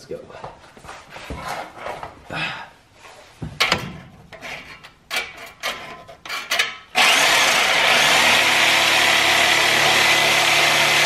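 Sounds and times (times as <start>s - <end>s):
knocks and scrapes of handling: 0.6s - 2.2s, 3.0s - 6.9s
reciprocating saw cutting metal pipe: 5.2s - 11.0s.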